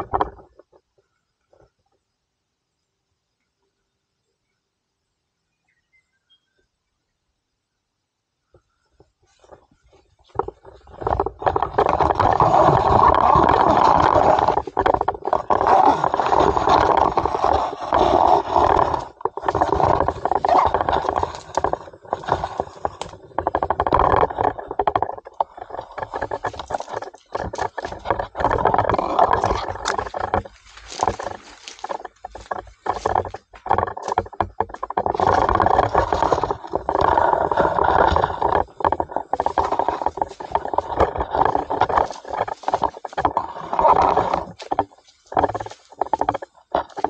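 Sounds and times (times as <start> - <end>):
camera rubbing and scraping: 9.3 - 47.0
knocks and clicks: 10.3 - 47.0.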